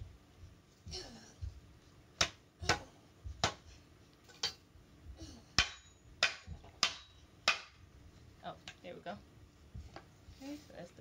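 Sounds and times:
wood being hammered: 2.2s - 3.6s, 5.6s - 7.8s.

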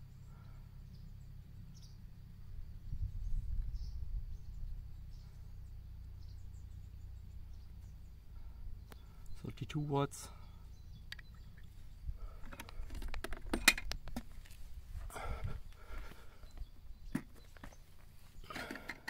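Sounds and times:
faint high bird chirps: 0.0s - 12.4s
wind rumbling on microphone: 1.7s - 6.7s, 11.2s - 17.2s.

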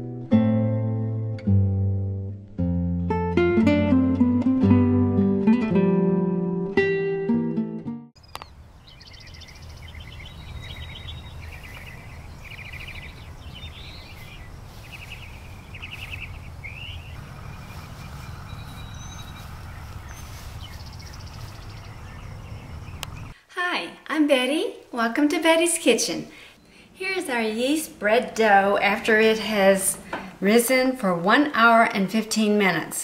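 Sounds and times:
acoustic guitar music: 0.0s - 8.1s
birds chirping and trilling: 8.2s - 23.4s
low background rumble: 8.6s - 23.4s.

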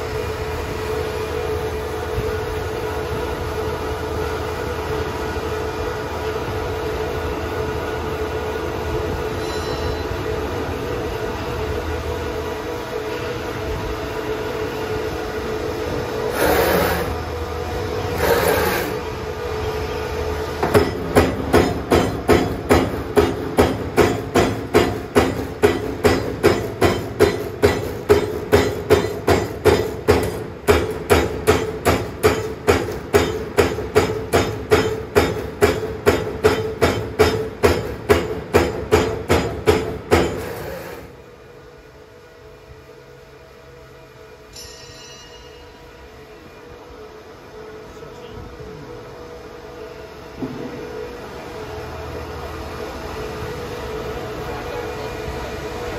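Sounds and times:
machine drives humming whine: 0.0s - 23.6s, 40.4s - 55.9s.

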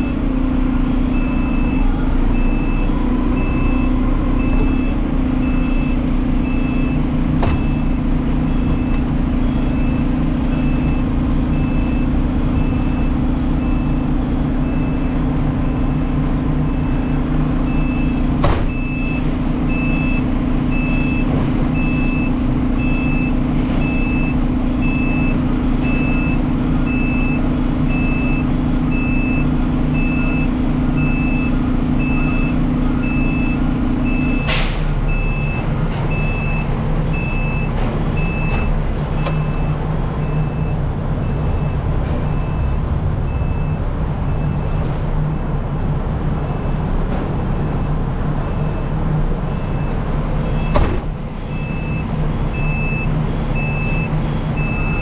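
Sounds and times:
garbage truck engine running: 0.0s - 55.0s
air brake hiss: 34.5s - 35.0s.

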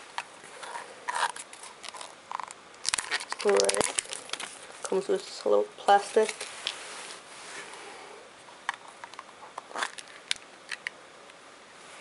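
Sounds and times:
soft rustle: 3.0s - 10.3s.

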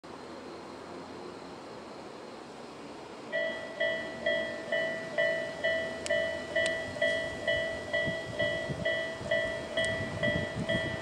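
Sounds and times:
faint outdoor hiss: 0.1s - 11.0s
level crossing warning bell: 3.3s - 11.0s.

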